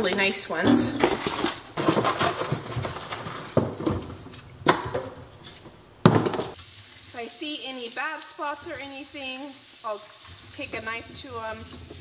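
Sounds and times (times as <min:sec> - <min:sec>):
potatoes rubbing and rattling: 0:00.0 - 0:04.3
potatoes knocking on hard surface: 0:00.0 - 0:05.2.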